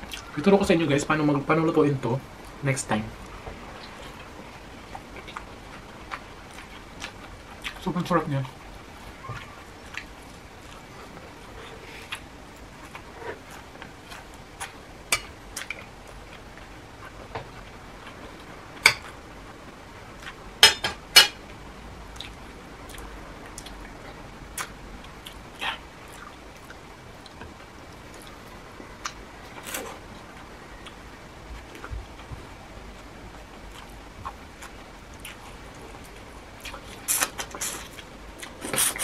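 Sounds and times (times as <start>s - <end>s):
chewing: 4.9s - 7.9s, 9.2s - 14.8s.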